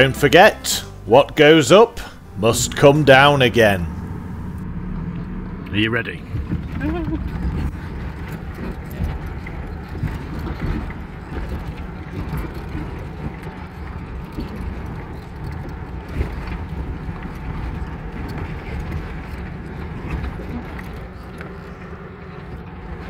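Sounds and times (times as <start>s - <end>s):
engine and tyre rumble: 0.0s - 23.0s
knocks and clatter over stones: 6.3s - 22.7s.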